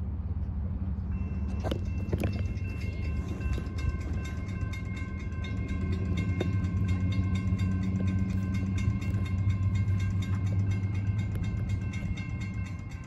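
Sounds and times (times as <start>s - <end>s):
freight train rumbling: 0.0s - 13.0s
railroad crossing bell ringing: 0.9s - 13.0s.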